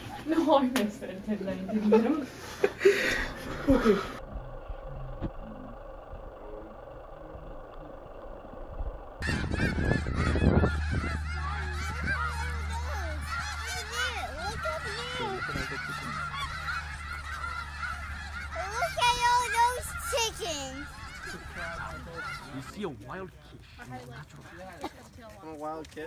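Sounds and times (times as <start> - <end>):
low steady rumble: 3.2 - 22.7
geese honking: 9.1 - 24.8.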